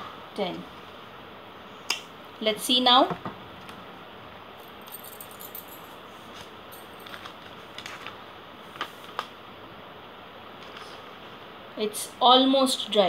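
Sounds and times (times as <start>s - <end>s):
steady low hiss: 0.0s - 13.0s
newspaper sheets handled: 6.3s - 9.4s.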